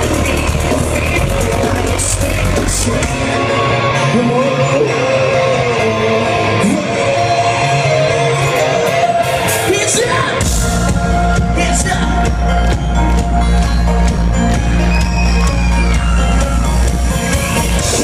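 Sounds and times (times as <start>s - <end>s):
person singing: 0.0s - 10.4s
heavy bass: 0.0s - 18.0s
live band playing: 0.0s - 18.0s.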